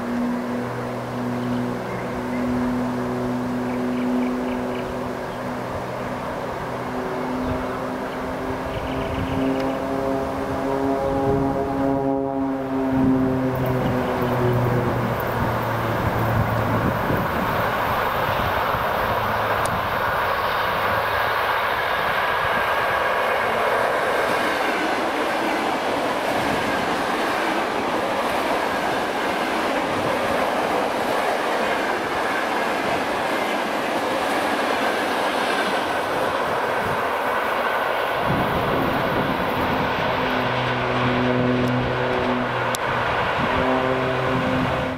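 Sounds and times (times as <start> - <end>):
train wheels rushing on rails: 12.6 - 44.9.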